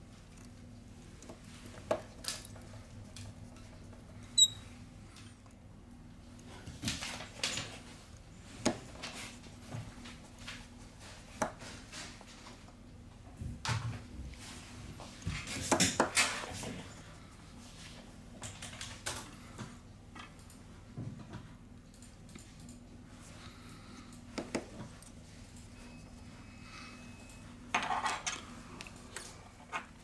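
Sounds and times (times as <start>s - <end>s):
faint steady hum: 0.0s - 30.0s
small clicks and taps of parts: 18.4s - 20.6s, 21.2s - 22.8s.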